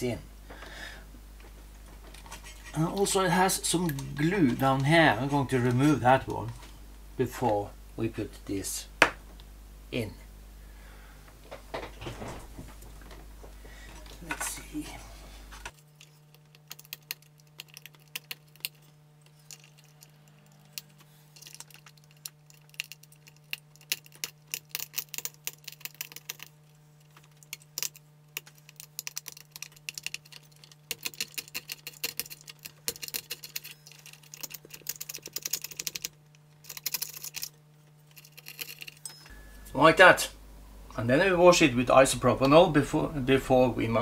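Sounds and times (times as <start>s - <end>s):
small clicks and scratches: 15.6s - 39.1s.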